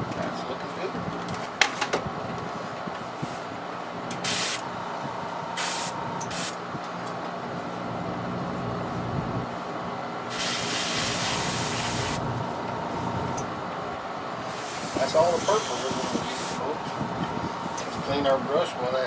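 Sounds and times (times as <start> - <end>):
steady low hum: 0.0 - 19.0
airbrush spraying hiss: 4.2 - 4.6, 5.6 - 6.6, 10.3 - 12.2, 14.5 - 16.6.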